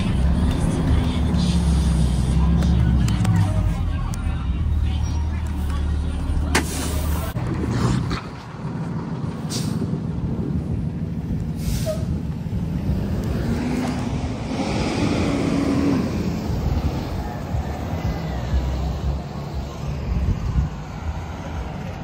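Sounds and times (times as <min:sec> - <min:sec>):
bus engine and road noise: 0:00.0 - 0:22.0
short air hisses: 0:11.6 - 0:12.2.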